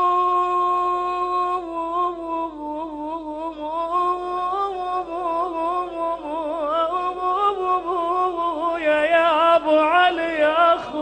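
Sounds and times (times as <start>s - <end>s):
man chanting a mournful lament: 5.3s - 11.0s.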